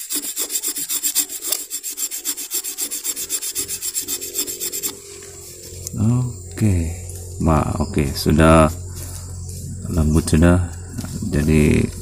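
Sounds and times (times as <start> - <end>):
knife scraping bamboo: 0.0 - 5.9.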